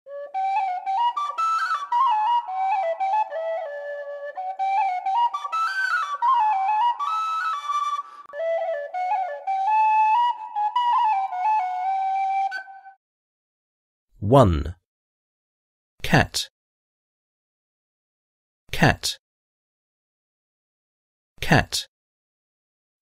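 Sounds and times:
bright flute-like melody: 0.1 - 13.0.

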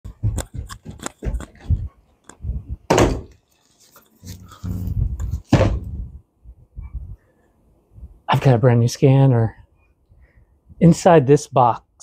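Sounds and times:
footsteps: 0.1 - 6.0
box thud on desk: 2.9 - 3.4, 5.5 - 5.9
knocks: 2.9 - 3.4, 5.5 - 5.9.

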